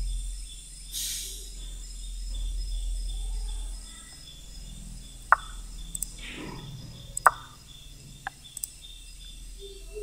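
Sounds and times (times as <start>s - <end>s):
chess piece move clicks: 5.3s - 5.6s.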